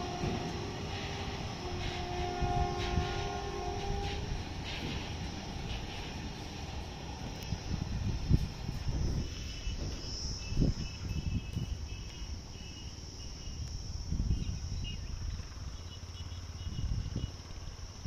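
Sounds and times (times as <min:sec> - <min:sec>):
insects trilling: 0:00.0 - 0:18.0
faint pulsing chirp: 0:09.2 - 0:18.0.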